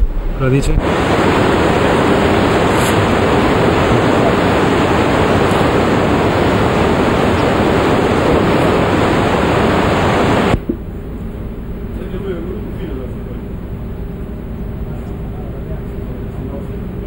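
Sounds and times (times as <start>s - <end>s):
waterfall rushing: 0.4s - 10.6s.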